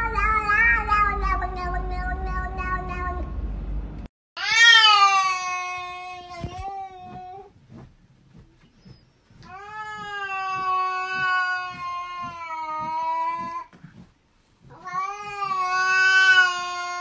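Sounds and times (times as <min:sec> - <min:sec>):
cat yowling: 0:04.4 - 0:07.5, 0:14.7 - 0:17.0.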